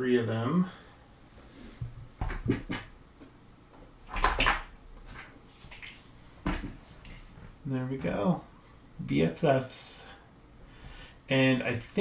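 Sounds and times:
plastic dolls knocking on table: 0:02.2 - 0:02.9.

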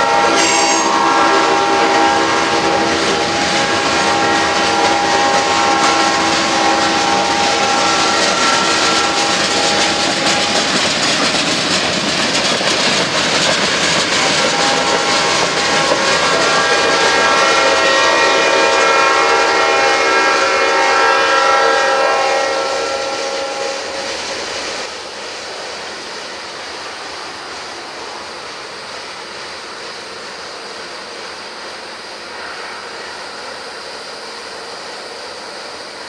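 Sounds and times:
loud steady overtone-rich tone: 0:00.0 - 0:10.7
freight train rolling on rails: 0:00.0 - 0:36.0.

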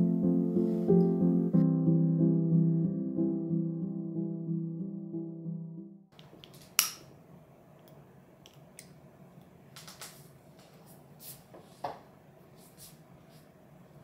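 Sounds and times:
background piano music: 0:00.0 - 0:06.1.

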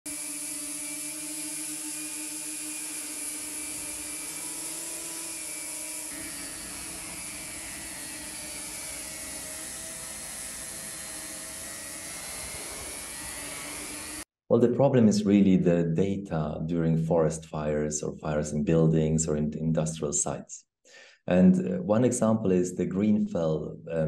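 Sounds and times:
drone rotors buzzing: 0:00.1 - 0:14.2.

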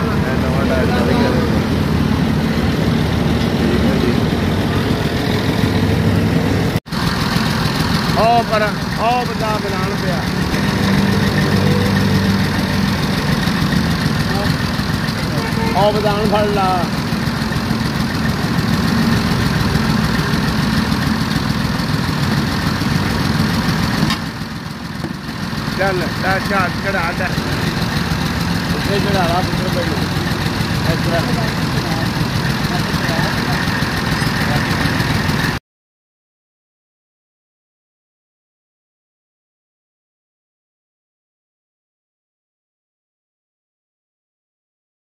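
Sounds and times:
engine idling: 0:00.0 - 0:35.6.

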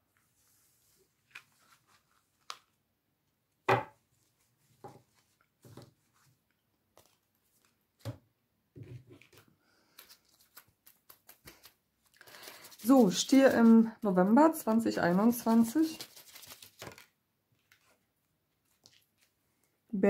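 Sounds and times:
cards tapping and rustling on table: 0:16.4 - 0:17.1.

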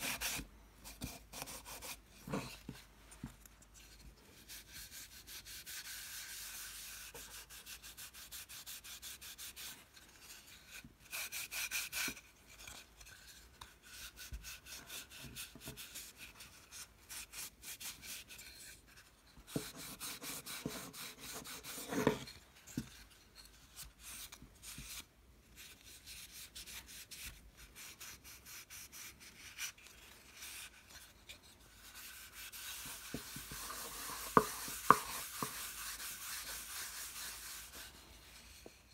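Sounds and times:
sanding wood strokes: 0:19.5 - 0:22.2, 0:31.8 - 0:38.4.

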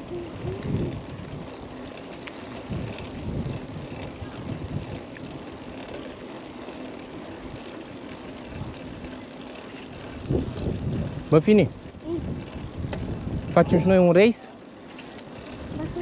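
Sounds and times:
wind on microphone: 0:00.0 - 0:01.6, 0:02.5 - 0:05.4, 0:10.2 - 0:14.0
bike tyres rolling on trail: 0:00.0 - 0:16.0.

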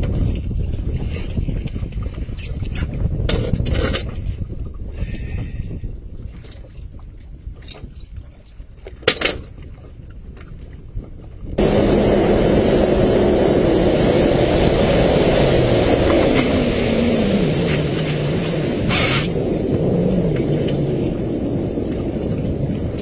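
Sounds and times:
water rushing past hull: 0:09.7 - 0:23.0
outboard motor running: 0:10.0 - 0:23.0.

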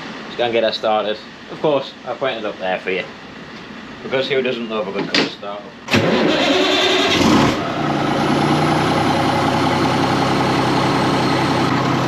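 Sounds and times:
diesel engine idling: 0:06.0 - 0:12.0.

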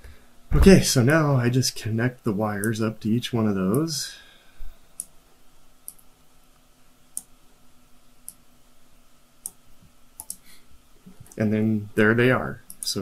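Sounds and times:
faint steady hum: 0:00.0 - 0:13.0
computer mouse clicking: 0:05.9 - 0:06.1, 0:10.2 - 0:10.4.

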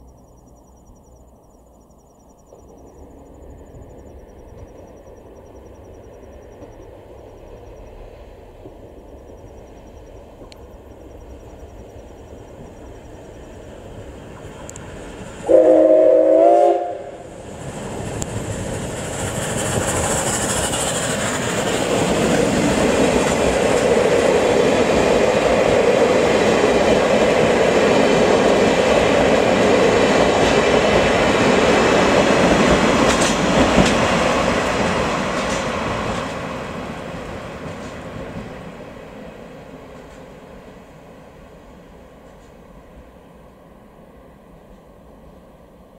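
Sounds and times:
train rumbling over rails: 0:00.0 - 0:45.9
steam locomotive whistle: 0:15.4 - 0:17.2.

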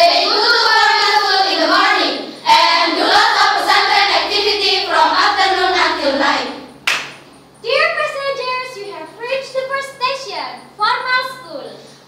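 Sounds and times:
girls singing in unison: 0:00.0 - 0:06.8.

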